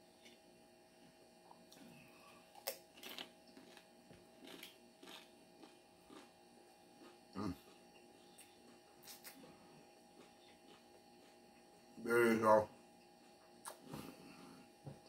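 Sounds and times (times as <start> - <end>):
low electrical hum: 0.0 - 15.0
chewing crunchy taco shell: 1.5 - 12.0.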